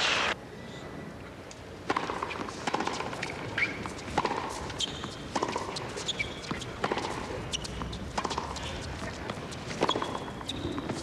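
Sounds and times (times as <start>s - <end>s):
tennis ball bouncing: 1.8s - 11.0s
tennis racket hitting ball: 1.9s - 8.8s
high shoe squeaks: 3.2s - 4.0s, 4.7s - 6.8s, 7.4s - 8.1s, 9.8s - 11.0s.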